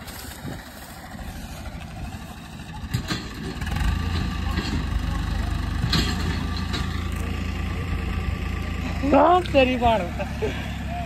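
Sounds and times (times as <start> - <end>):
tractor engine under load: 0.0 - 11.0.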